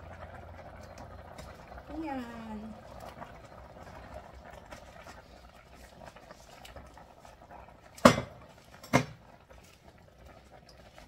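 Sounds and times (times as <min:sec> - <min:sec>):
broth simmering with faint crackling: 0:00.0 - 0:11.0
knocks on a wok: 0:08.0 - 0:09.2.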